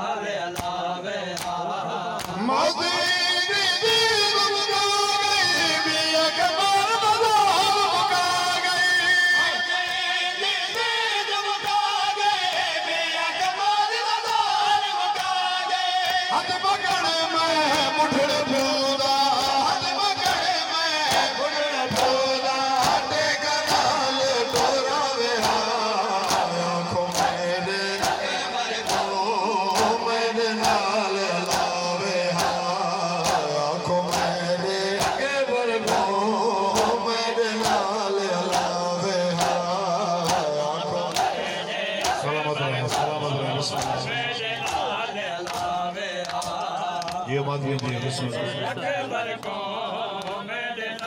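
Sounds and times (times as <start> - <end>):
men chanting in unison: 0.0 - 51.0
hands slapping chests: 0.5 - 2.4, 21.1 - 22.2, 22.8 - 31.8, 32.4 - 33.5, 34.1 - 34.4, 35.0 - 36.1, 36.8 - 37.0, 38.4 - 38.7, 39.4 - 39.6, 40.2 - 42.2, 43.7 - 44.0, 44.6 - 47.2.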